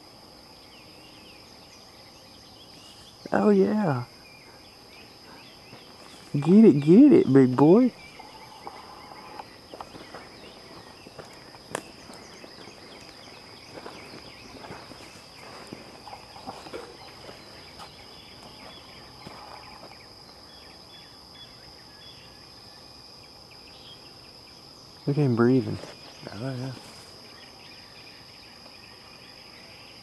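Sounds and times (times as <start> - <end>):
insect drone: 0.0 - 30.0
rustling in dry leaves: 8.8 - 19.8, 25.6 - 27.4.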